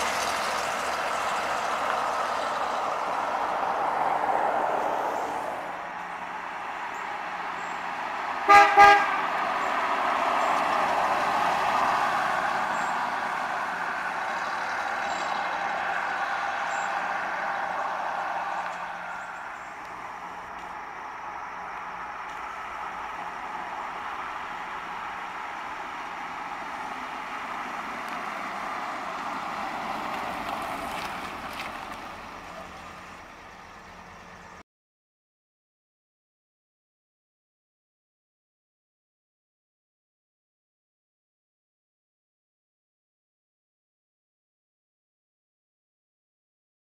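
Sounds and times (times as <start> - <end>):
car driving past: 0.0 - 34.6.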